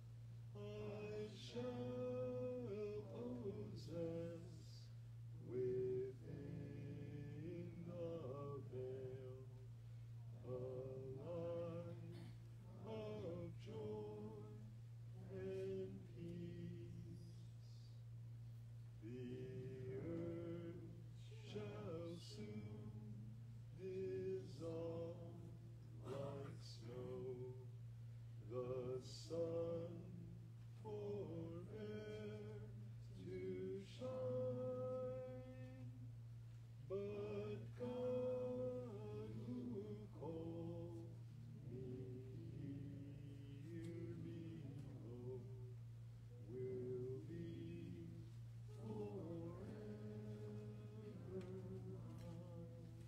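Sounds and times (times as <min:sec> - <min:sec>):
low electrical hum: 0:00.0 - 0:53.0
person singing a hymn: 0:00.5 - 0:09.7, 0:10.3 - 0:17.9, 0:19.0 - 0:27.8, 0:28.4 - 0:36.1, 0:36.9 - 0:53.0.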